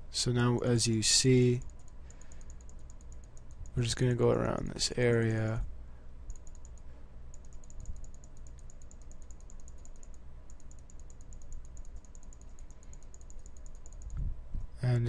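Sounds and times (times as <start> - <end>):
rapid faint clicking: 1.6 - 5.1, 6.2 - 14.2.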